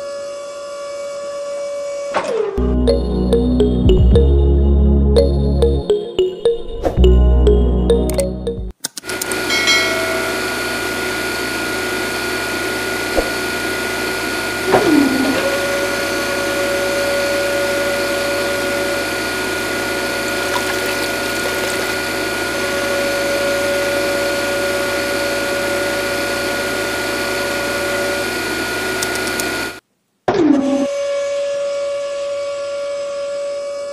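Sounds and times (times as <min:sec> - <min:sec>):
tone sliding down in pitch: 0:02.6 - 0:08.7.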